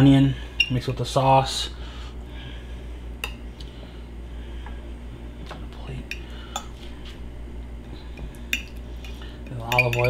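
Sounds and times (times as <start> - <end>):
fork clinking on ceramic plate: 9.7 - 10.0.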